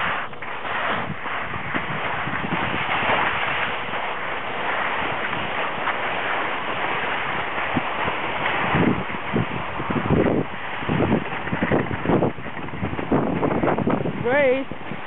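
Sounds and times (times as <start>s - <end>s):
skis scraping over snow: 0.0s - 15.0s
wind on microphone: 0.0s - 15.0s.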